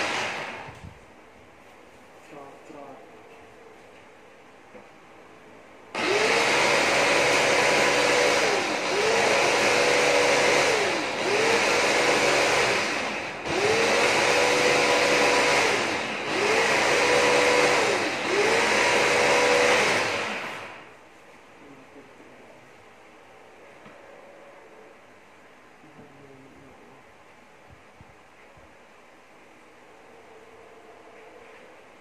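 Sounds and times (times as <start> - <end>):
electric food chopper motor: 0.0 - 0.8, 6.0 - 20.9.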